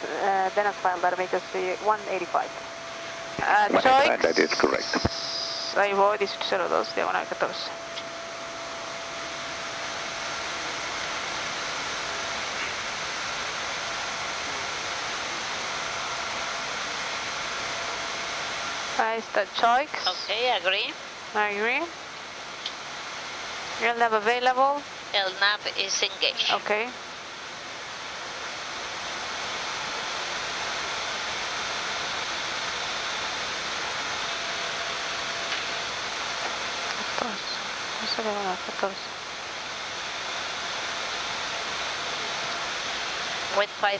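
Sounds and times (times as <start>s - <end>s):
faint whining tones: 0.0s - 12.9s
airplane cockpit rushing noise: 3.4s - 7.6s.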